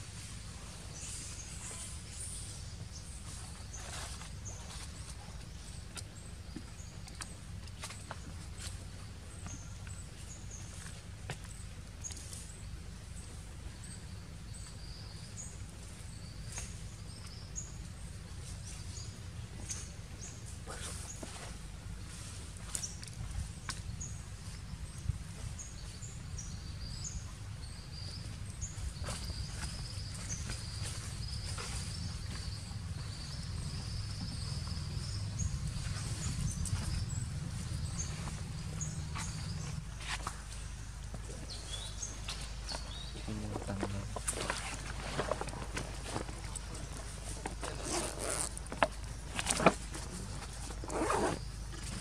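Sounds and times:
low forest rumble: 0.0 - 52.0
low rumble: 23.2 - 43.8.

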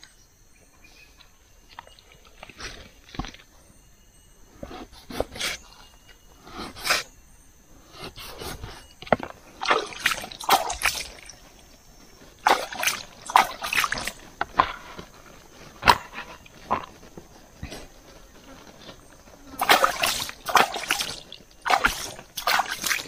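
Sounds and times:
leaves rustling: 8.6 - 23.0
wet slaps and scrapes: 9.6 - 11.5, 12.3 - 15.1, 19.6 - 23.0.

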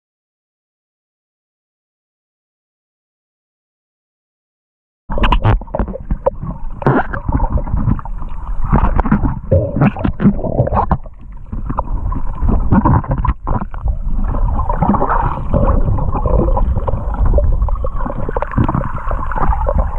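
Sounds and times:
underwater clicks and knocks: 5.1 - 19.9
underwater low rumble: 5.1 - 19.9.

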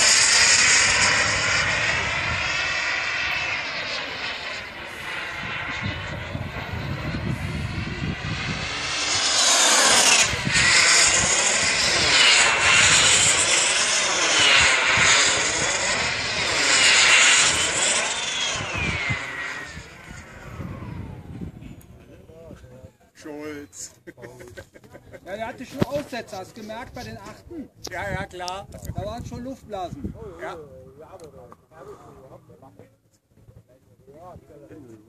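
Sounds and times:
model jet turbine whine: 0.0 - 23.9.

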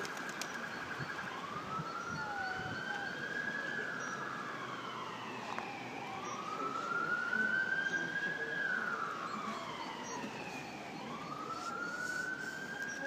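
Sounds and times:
siren wailing: 0.6 - 13.0.

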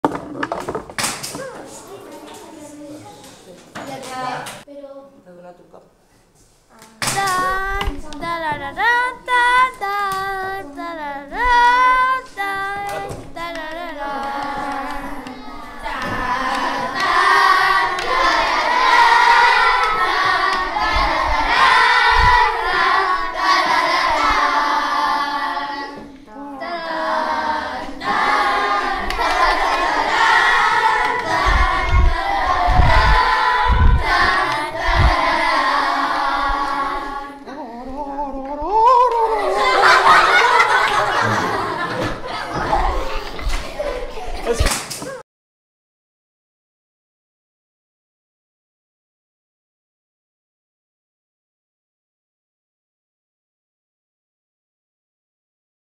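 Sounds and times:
children singing and wailing: 7.0 - 44.4
dull low thumps: 31.3 - 35.3.

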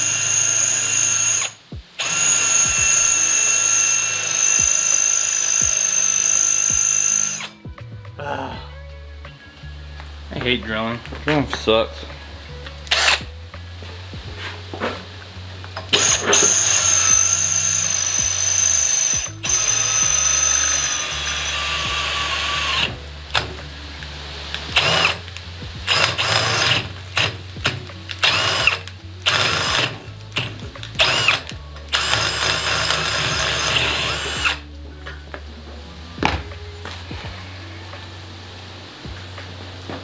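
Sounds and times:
cordless drill boring: 0.0 - 7.6, 12.9 - 13.2, 15.9 - 23.5, 24.8 - 34.6.

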